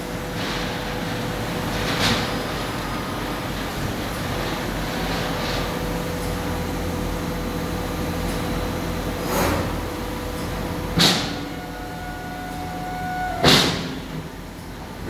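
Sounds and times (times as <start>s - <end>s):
laser cutting machine hum: 10.0s - 15.0s.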